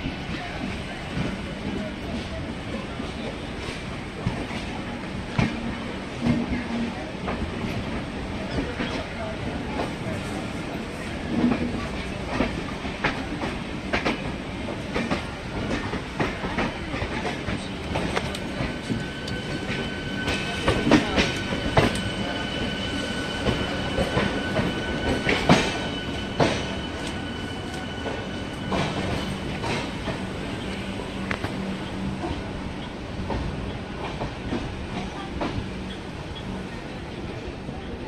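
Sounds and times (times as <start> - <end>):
electric train passing: 9.2 - 38.0.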